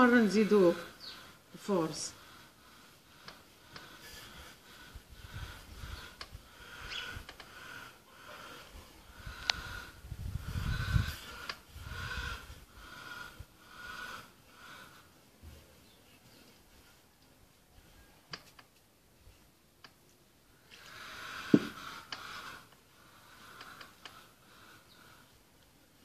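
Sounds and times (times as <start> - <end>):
sharp clicks: 6.2 - 7.6.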